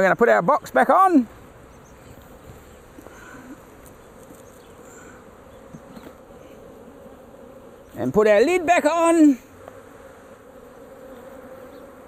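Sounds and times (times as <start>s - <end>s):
bees buzzing: 0.0s - 12.0s.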